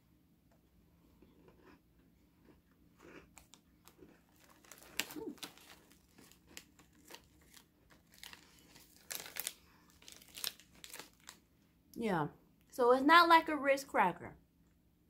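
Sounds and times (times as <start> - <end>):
plastic wrapper crinkling: 3.4 - 11.4.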